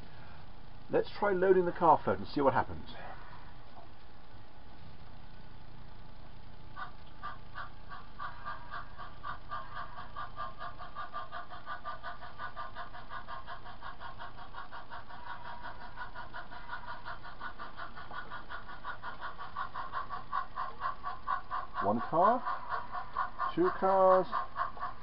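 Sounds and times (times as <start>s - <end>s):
model locomotive pulsing buzz: 0.0s - 25.0s.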